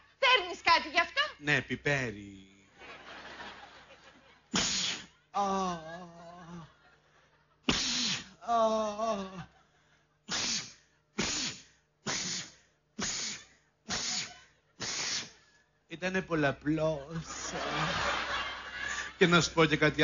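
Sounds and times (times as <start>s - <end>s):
person sneezing: 4.6s - 5.8s, 7.7s - 9.4s, 10.3s - 15.4s
person moaning: 5.4s - 6.8s, 8.4s - 9.6s.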